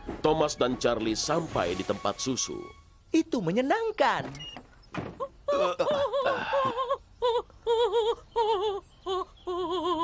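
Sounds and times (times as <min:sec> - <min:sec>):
woman singing opera: 0:07.2 - 0:10.0.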